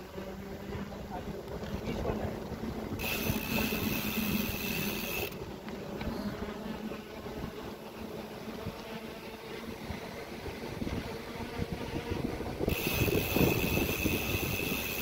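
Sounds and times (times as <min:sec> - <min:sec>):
bicycle rolling on paving stones: 0:00.0 - 0:15.0
wind buffeting microphone: 0:00.0 - 0:15.0
high steady hiss: 0:02.2 - 0:06.2.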